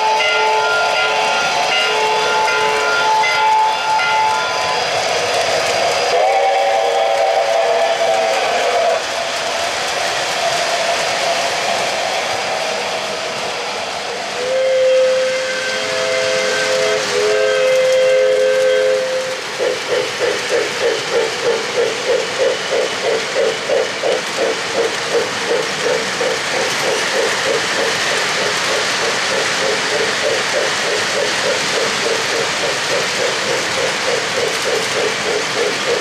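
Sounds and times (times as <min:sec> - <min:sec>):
model train chord whistle: 0:00.0 - 0:04.9, 0:06.1 - 0:08.9, 0:14.4 - 0:19.5
locomotive bell ringing: 0:00.0 - 0:05.1
model train rolling on track: 0:00.0 - 0:36.0.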